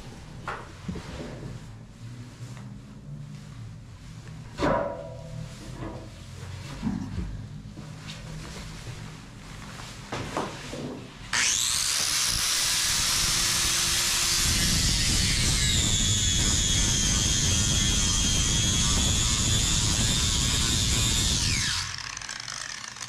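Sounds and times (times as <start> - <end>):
angle grinder motor whine: 11.3 - 23.0
disc grinding fiberglass: 11.3 - 23.0.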